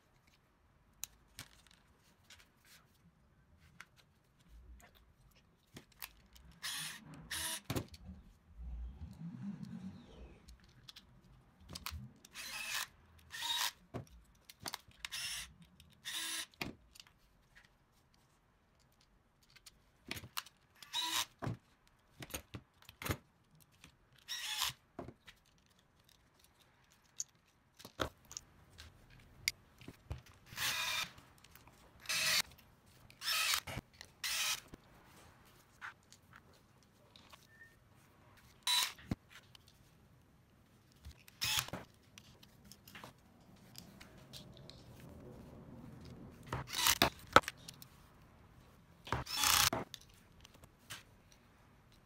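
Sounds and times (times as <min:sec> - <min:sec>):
power screwdriver driving screws: 0:06.6 - 0:07.8, 0:12.3 - 0:13.8, 0:15.1 - 0:16.6, 0:20.8 - 0:21.3, 0:24.3 - 0:24.8, 0:30.5 - 0:31.2, 0:32.0 - 0:32.4, 0:33.2 - 0:34.8, 0:41.4 - 0:41.8, 0:46.6 - 0:47.4, 0:49.2 - 0:49.8
clicks of screws and parts handled: 0:13.1 - 0:20.9, 0:25.1 - 0:30.5.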